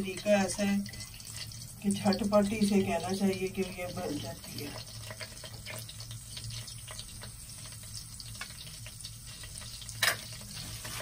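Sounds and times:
spices sizzling in hot oil: 0.0 - 11.0.

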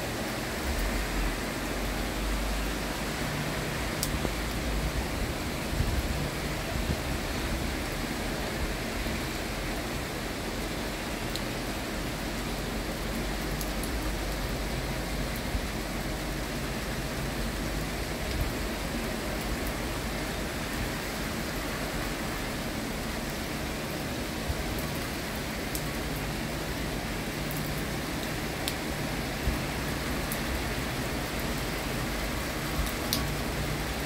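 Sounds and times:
steady rain falling: 0.0 - 34.0.

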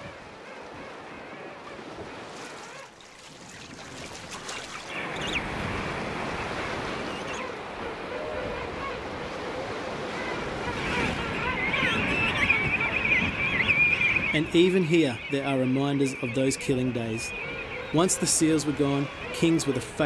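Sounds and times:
faint penguin calls: 9.9 - 20.0.

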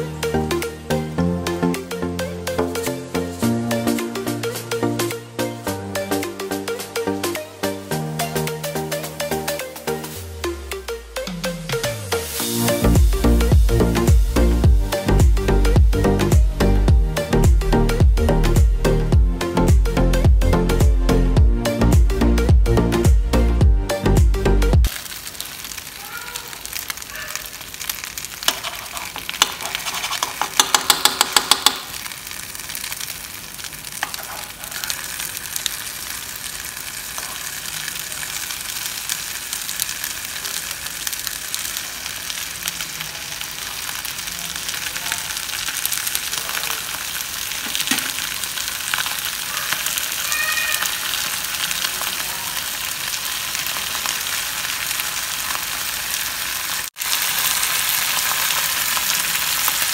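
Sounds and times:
food sizzling in a frying pan: 11.3 - 15.7, 24.8 - 59.9.

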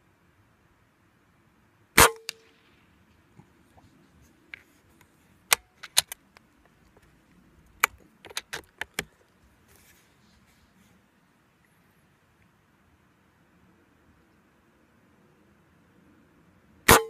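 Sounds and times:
air rifle bolt clicks: 5.5 - 6.2.

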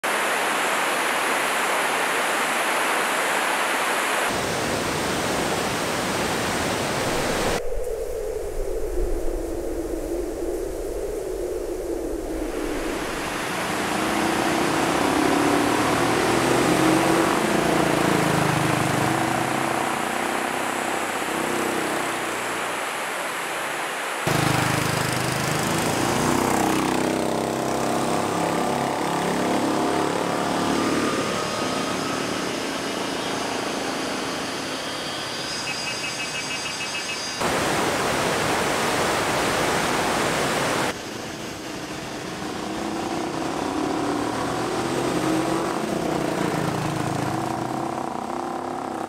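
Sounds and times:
river rushing over weirs: 0.0 - 7.6, 11.3 - 35.7, 37.3 - 41.0
low wavering drone: 7.5 - 22.8, 28.0 - 35.8, 41.2 - 49.0.

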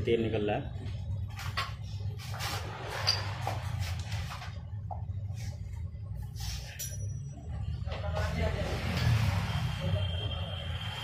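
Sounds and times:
steady low hum: 0.0 - 8.6
metallic clink: 6.7 - 7.3.

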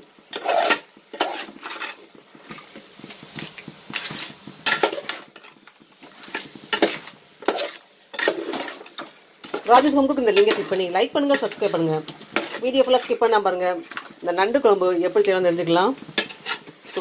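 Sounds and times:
faint sizzle: 0.0 - 17.0
metal spoon scraping pot: 0.3 - 2.0.

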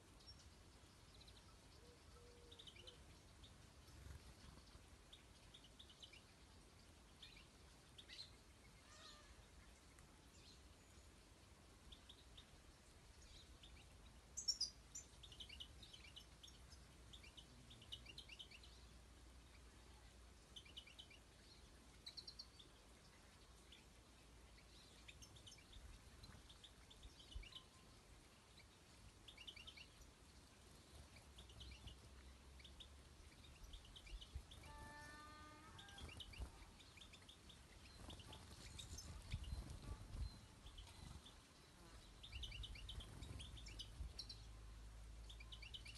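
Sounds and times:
high falling bird call: 34.5 - 36.6.

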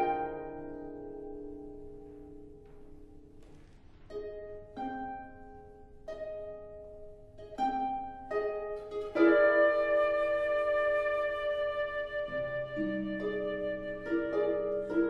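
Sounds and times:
flute viola and harp trio: 0.0 - 1.1, 8.3 - 15.0
plucked harp chords: 0.0 - 11.5.

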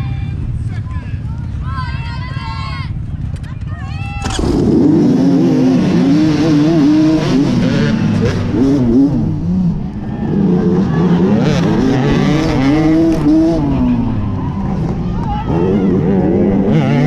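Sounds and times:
dirt bike engine revving: 4.3 - 17.0.

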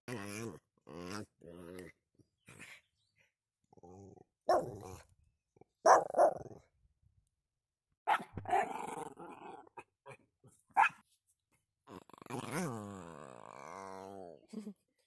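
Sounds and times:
dog growling: 3.8 - 5.1, 11.9 - 14.5
dog barking: 4.5 - 4.8, 5.8 - 6.4, 8.1 - 8.3, 10.8 - 11.0.

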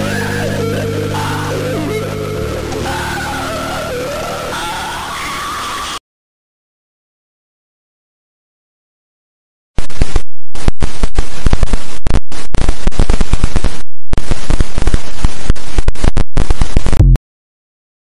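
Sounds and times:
loud distorted crackling noise: 0.0 - 6.0, 9.8 - 17.2.

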